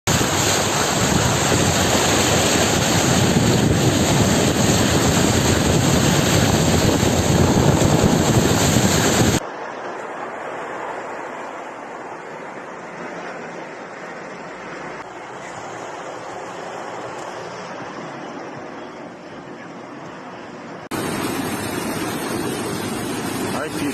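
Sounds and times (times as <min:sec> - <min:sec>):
wind buffeting microphone: 0:00.1 - 0:09.4
floodwater rushing: 0:00.1 - 0:19.3, 0:20.3 - 0:23.9.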